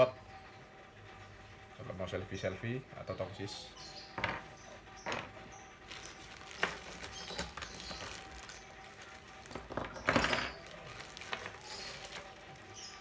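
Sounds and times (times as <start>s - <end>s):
plastic bags rustling: 5.1s - 13.0s.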